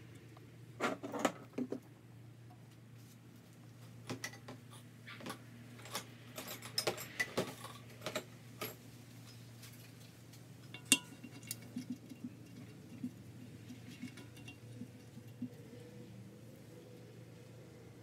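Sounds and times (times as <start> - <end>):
small metal parts clinking: 5.7 - 10.0, 10.6 - 15.5.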